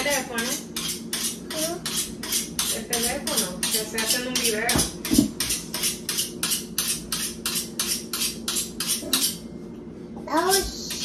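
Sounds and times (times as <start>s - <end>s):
knife scraping on sharpener: 0.0s - 4.6s, 5.4s - 9.5s.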